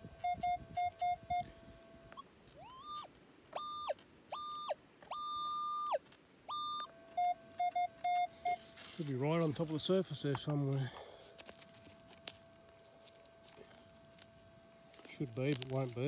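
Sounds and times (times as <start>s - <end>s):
metal detector low blips: 0.1s - 10.0s
metal detector rising high tones: 2.6s - 9.8s
metal detector threshold tone: 2.6s - 10.6s, 11.7s - 16.0s.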